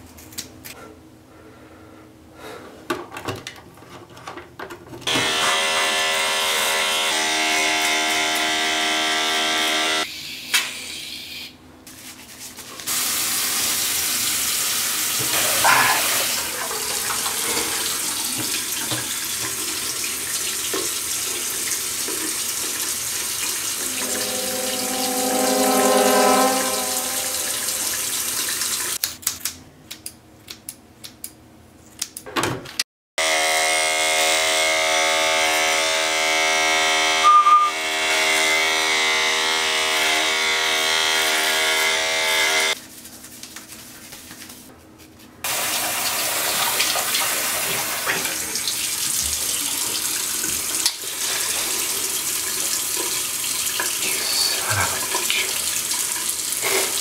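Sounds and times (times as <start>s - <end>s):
electric beard trimmer buzzing: 5.1s - 10.1s, 33.2s - 42.8s
low pitched tone: 23.8s - 28.6s, 37.2s - 37.9s.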